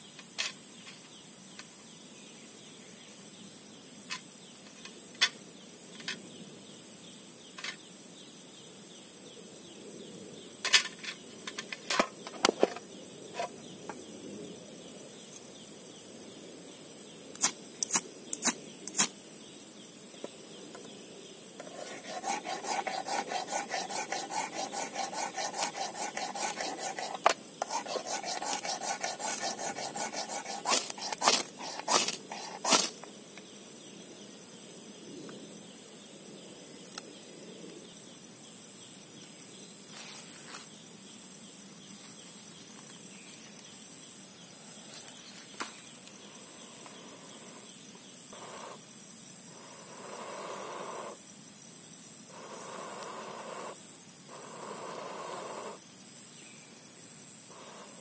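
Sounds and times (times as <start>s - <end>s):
high insect buzz: 0.0s - 58.0s
ferro rod striker scraping: 21.6s - 32.9s.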